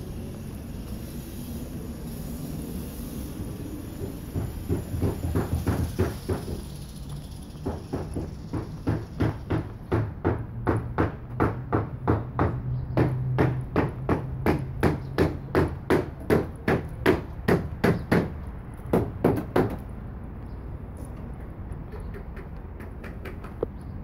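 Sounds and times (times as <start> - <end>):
hammer blows: 3.9 - 6.8.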